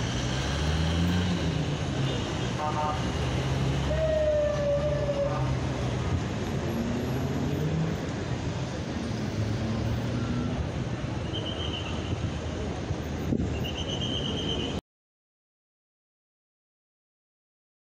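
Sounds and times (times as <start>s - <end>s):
vehicle engines idling and moving: 0.0s - 14.8s
horn or siren tone: 3.9s - 5.6s.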